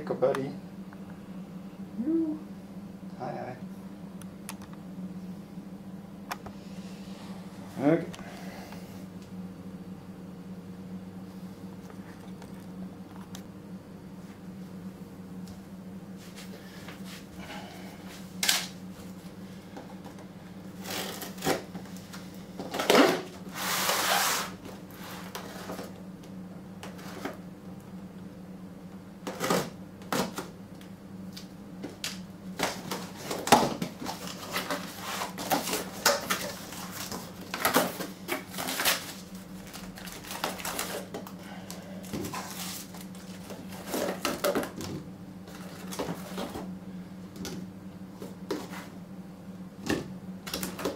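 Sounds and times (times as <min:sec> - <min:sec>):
steady low hum: 0:00.0 - 0:50.9
packing tape cut and pulled: 0:20.8 - 0:21.6, 0:22.7 - 0:25.8, 0:32.6 - 0:41.1
cardboard tearing rasp: 0:22.9 - 0:25.7.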